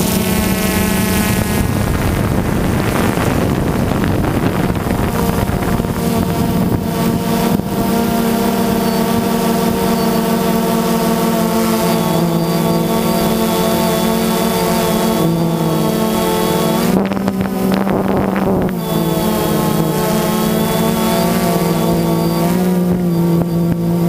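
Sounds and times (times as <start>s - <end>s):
drone propellers whining: 0.0s - 24.0s
wind noise on microphone: 0.0s - 24.0s.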